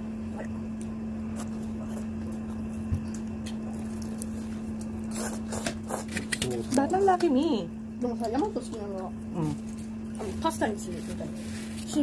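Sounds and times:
steady low hum: 0.0 - 12.0
chewing and eating noises: 0.2 - 7.2, 8.1 - 12.0
chopsticks clicking on food: 6.2 - 7.3.

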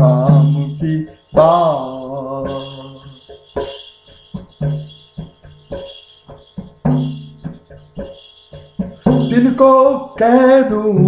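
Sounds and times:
person singing: 0.0 - 3.2, 9.1 - 11.0
jingling bell percussion: 0.0 - 11.0.

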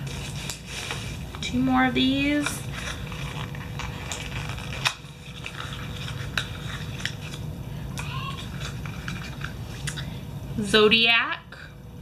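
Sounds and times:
low steady hum: 0.0 - 12.0
packaging crinkling: 2.6 - 7.5.

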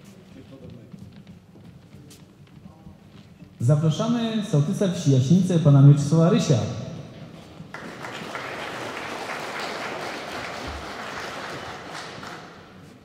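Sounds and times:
audience applauding: 7.7 - 13.0.

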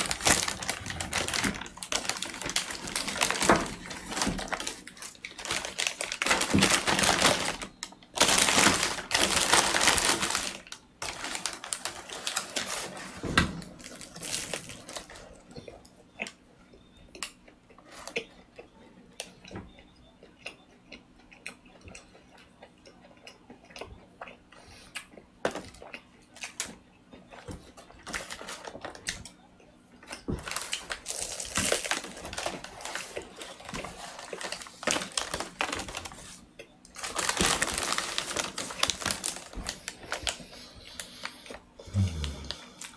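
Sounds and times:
paper wrapping crinkling: 0.0 - 15.4, 28.0 - 29.0, 30.4 - 41.4
quiet chewing: 13.9 - 28.1, 39.7 - 42.9.

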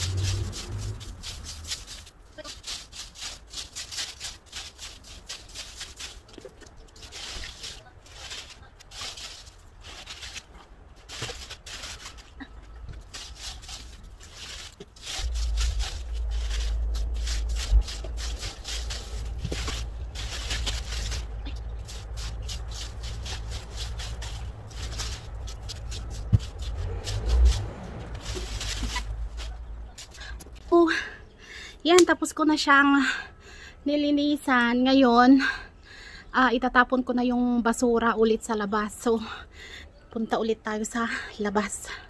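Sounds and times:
steady low rumble: 0.0 - 3.5, 4.1 - 31.4
broom sweeping leaves: 0.0 - 12.4, 13.0 - 30.6.

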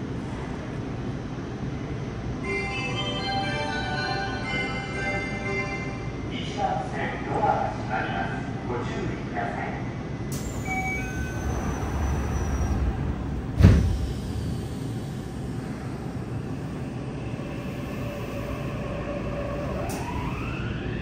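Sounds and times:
train doors sliding shut: 10.3 - 16.0, 19.4 - 20.5.

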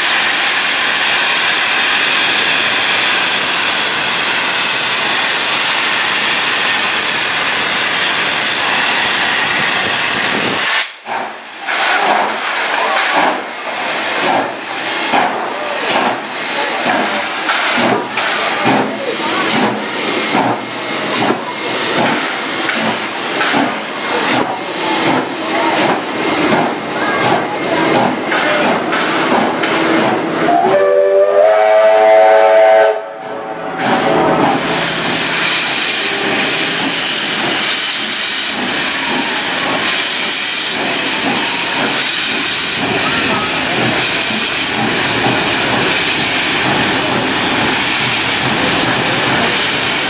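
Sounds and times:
steam hissing: 0.0 - 50.0
steam locomotive chuffing: 0.0 - 50.0
steam whistle blowing: 30.4 - 33.5.

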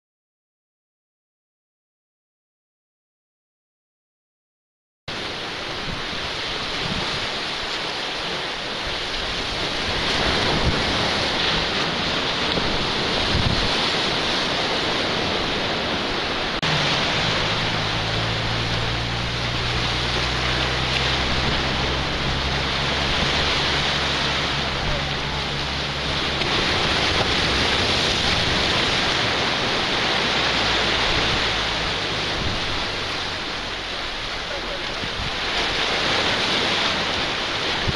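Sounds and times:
sea surf breaking on rocks: 5.1 - 37.9
wind on microphone: 5.1 - 37.9
low steady hum: 16.6 - 35.0.

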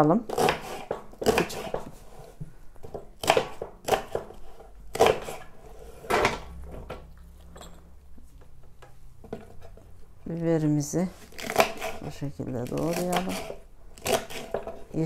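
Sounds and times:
knife chopping on wooden board: 0.3 - 2.0, 2.8 - 6.4.

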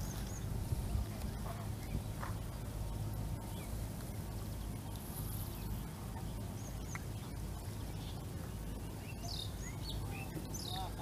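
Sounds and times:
low rumble: 0.0 - 11.0
faint high bird chirps: 4.5 - 11.0.

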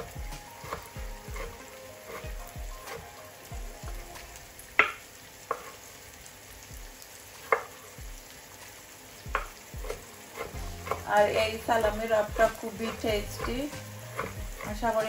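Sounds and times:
knife chopping on wooden board: 0.0 - 3.0, 4.8 - 5.7, 7.5 - 7.7, 9.3 - 11.1, 12.3 - 14.8
onions sizzling in a pan: 0.0 - 15.0.

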